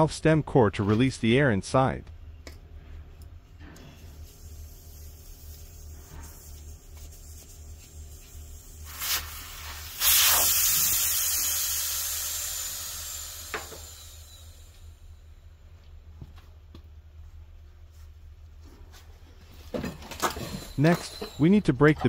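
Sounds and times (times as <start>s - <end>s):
air hissing from tire valve: 3.8s - 15.4s.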